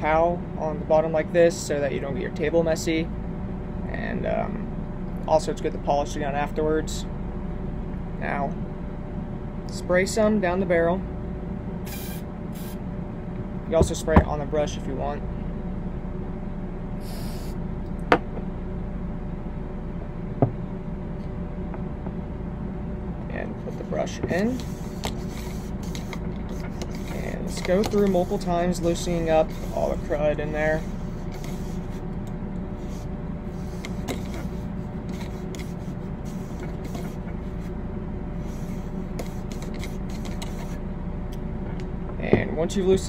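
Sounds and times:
steady low hum: 0.0s - 43.0s
brush scraping in gun barrel: 24.4s - 32.0s.

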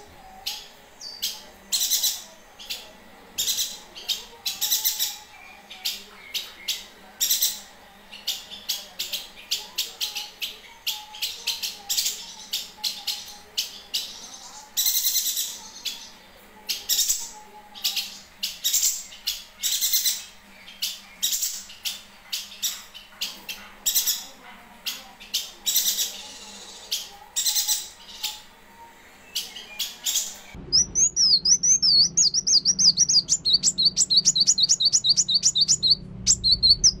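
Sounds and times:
bird chirping high notes: 30.6s - 37.0s
low hum: 30.6s - 37.0s.

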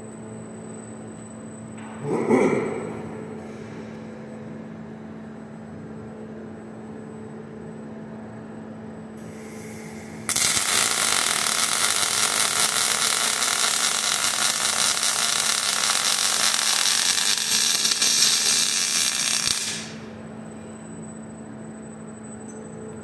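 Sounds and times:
welding arc burning: 9.2s - 20.1s.

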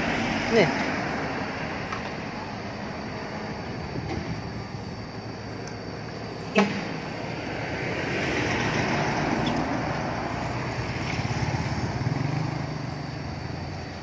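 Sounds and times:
vehicle passing by: 6.8s - 14.0s.

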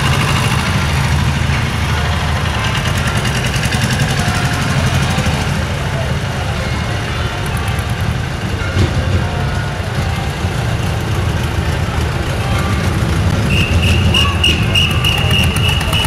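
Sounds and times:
tractor engine rumbling: 0.0s - 16.0s
high whistle-like tone: 13.5s - 16.0s.

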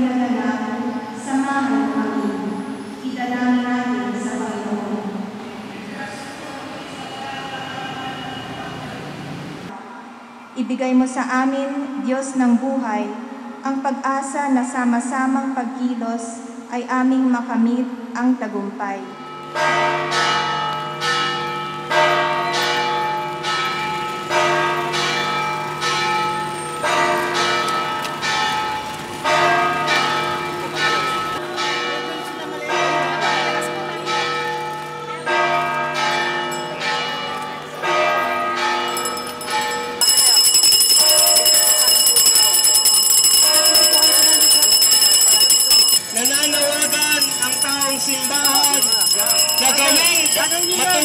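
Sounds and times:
church bells pealing: 19.1s - 51.0s
handbell shaken rapidly: 38.9s - 51.0s.

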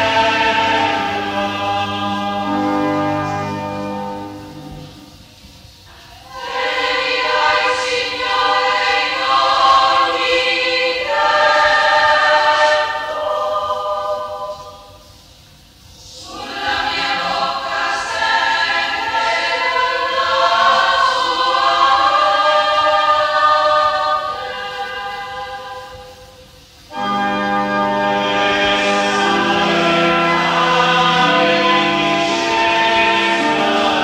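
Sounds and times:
women's choir singing a hymn: 0.0s - 5.2s, 5.9s - 15.2s, 15.9s - 34.0s
held organ chords: 0.0s - 5.5s, 26.9s - 34.0s.

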